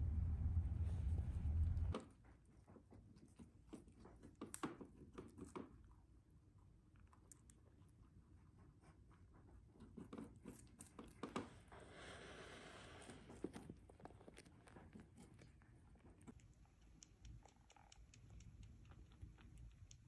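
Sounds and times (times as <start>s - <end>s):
faint clicks and rustles: 13.0s - 20.0s.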